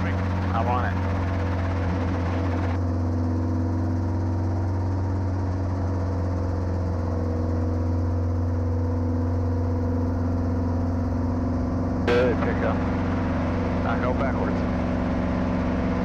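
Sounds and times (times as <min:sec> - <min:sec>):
helicopter engine and rotor drone: 0:00.0 - 0:16.0.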